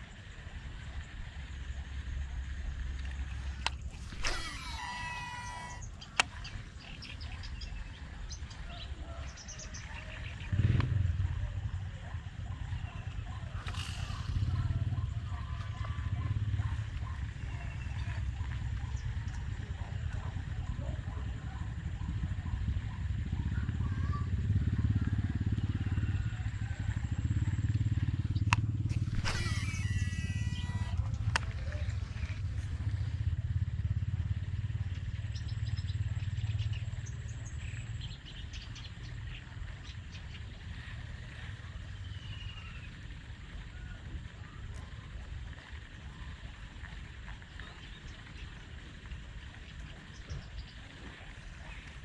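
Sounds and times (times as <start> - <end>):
fishing reel spool whirring: 0.0 - 8.2, 12.6 - 20.6, 25.6 - 33.2
small birds chirping: 0.0 - 33.2, 34.4 - 52.0
low pulsing engine rumble: 0.0 - 52.0
sharp reel click: 3.0 - 6.6, 13.5 - 14.9.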